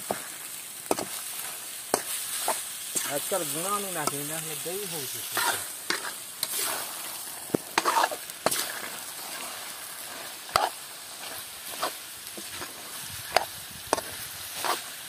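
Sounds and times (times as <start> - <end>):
chicken sizzling in a pan: 0.0 - 15.0
metal spatula scraping a pan: 5.1 - 15.0.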